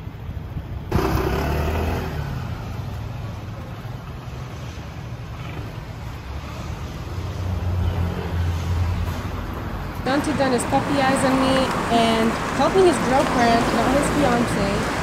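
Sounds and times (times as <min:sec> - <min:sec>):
scooter engine humming: 0:00.0 - 0:08.4.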